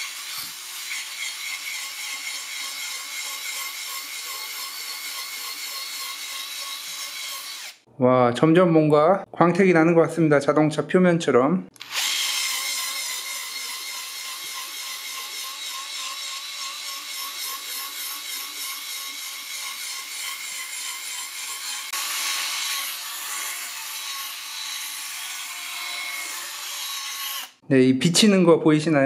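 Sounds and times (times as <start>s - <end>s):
electric drill motor whine: 11.8s - 14.0s.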